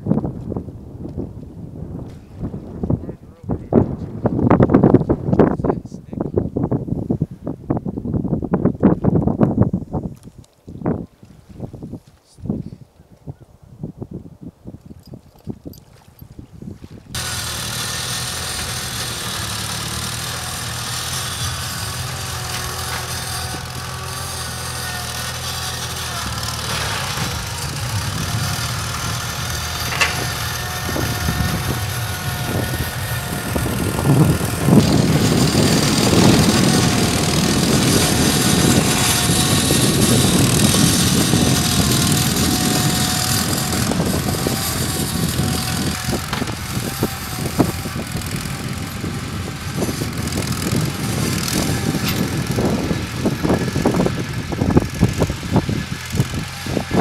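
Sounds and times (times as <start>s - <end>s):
metal clanks: 17.2s - 33.4s, 51.7s - 52.4s
tractor engine running: 17.2s - 57.0s.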